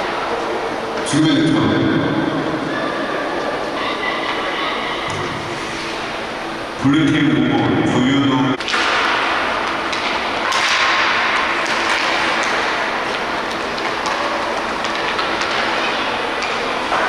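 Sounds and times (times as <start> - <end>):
clacks of sticks and puck: 8.6 - 17.0.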